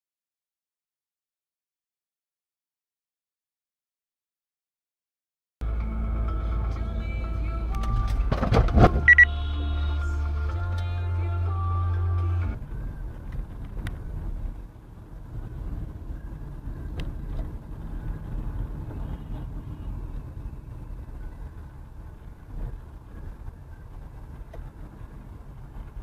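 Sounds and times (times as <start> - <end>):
car engine and tyres rumbling: 5.6 - 26.0.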